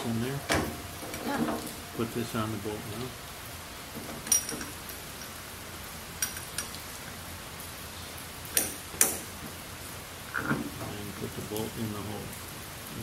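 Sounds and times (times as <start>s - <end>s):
steady hiss: 0.0s - 13.0s
metal hardware clinking: 4.0s - 5.4s, 6.2s - 6.8s.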